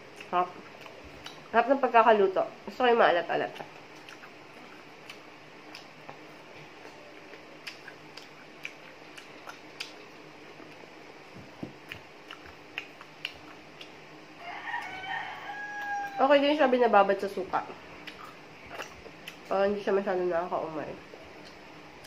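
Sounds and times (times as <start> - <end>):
crunchy chewing: 0.0 - 1.5, 3.6 - 10.9, 11.8 - 16.2, 18.0 - 19.5
faint steady hum: 0.0 - 22.0.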